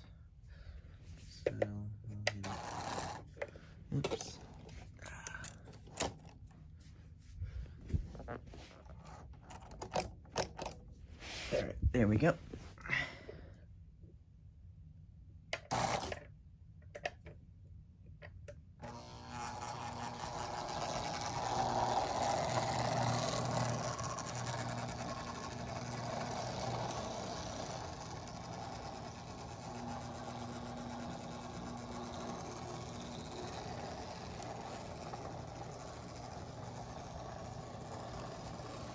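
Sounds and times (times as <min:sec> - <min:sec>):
toy train whirring on metal track: 0:02.3 - 0:03.3, 0:15.7 - 0:16.2, 0:18.8 - 0:38.9.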